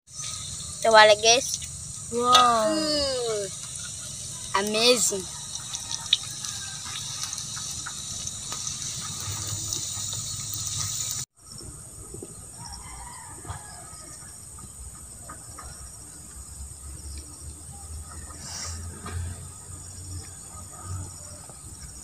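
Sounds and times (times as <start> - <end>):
leaves sizzling in hot oil: 0.1 - 11.3
outdoor background: 0.1 - 22.0.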